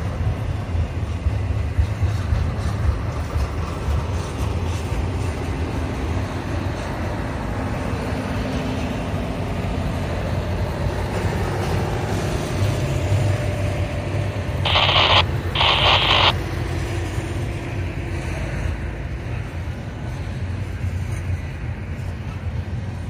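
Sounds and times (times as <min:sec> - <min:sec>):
freight train wheels rumbling: 0:00.0 - 0:23.0
short bursts of hiss: 0:14.7 - 0:16.3.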